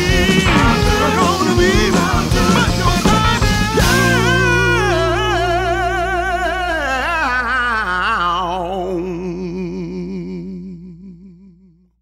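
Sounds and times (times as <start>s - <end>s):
song music: 0.0s - 7.2s
person singing with vibrato: 0.0s - 11.9s.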